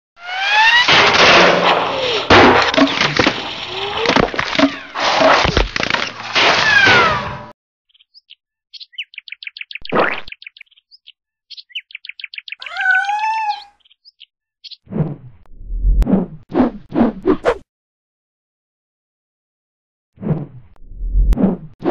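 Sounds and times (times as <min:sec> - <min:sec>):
cartoon bird chirps: 0:11.5 - 0:14.1.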